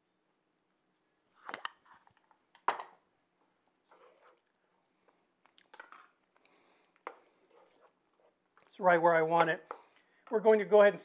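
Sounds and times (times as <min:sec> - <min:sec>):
wooden spoon stirring sauce in pan: 0:03.3 - 0:10.4.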